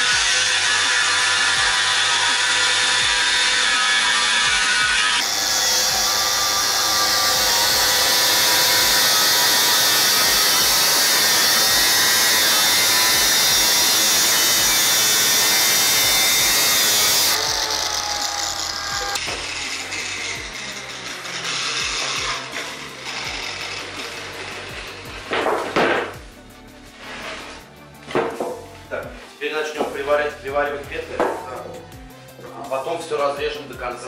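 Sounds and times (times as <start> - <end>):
grinder spinning down whine: 0.0 - 24.8
angle grinder cutting steel: 0.0 - 25.4.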